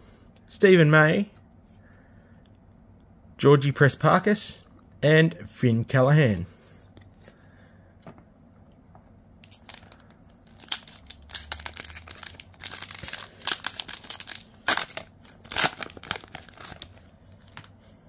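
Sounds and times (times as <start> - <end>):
wrapper crinkling and tearing: 9.4 - 17.7.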